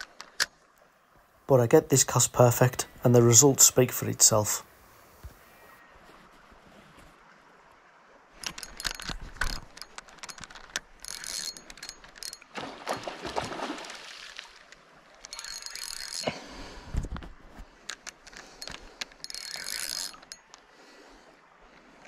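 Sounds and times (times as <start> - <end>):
fishing reel ratcheting: 8.4 - 12.5, 15.2 - 16.3, 17.8 - 20.6.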